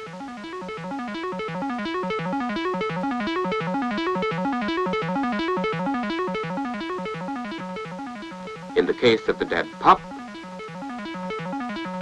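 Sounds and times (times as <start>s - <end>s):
keyboard music with note runs: 0.0s - 12.0s.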